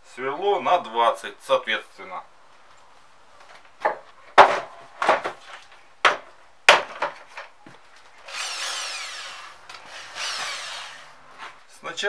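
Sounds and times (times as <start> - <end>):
electric drill whining: 8.2 - 11.3.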